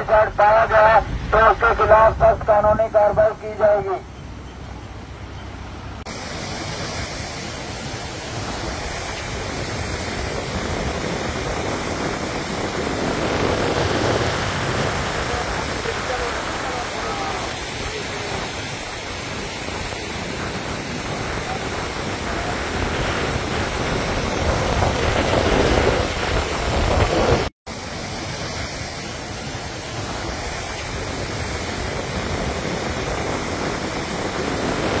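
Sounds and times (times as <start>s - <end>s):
floodwater rushing: 0.0s - 35.0s.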